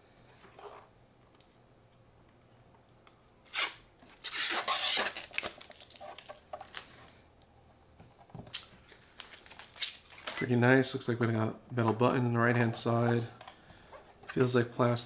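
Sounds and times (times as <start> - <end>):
plastic film peeling: 3.4 - 7.0, 8.5 - 10.5.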